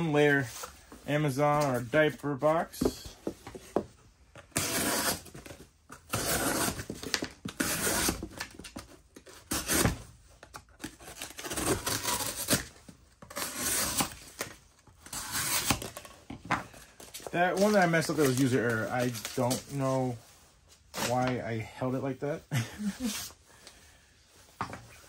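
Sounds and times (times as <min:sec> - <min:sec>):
knife slicing cardboard: 0:04.5 - 0:05.5, 0:06.1 - 0:08.5, 0:09.3 - 0:10.1, 0:10.8 - 0:12.7, 0:13.3 - 0:16.1.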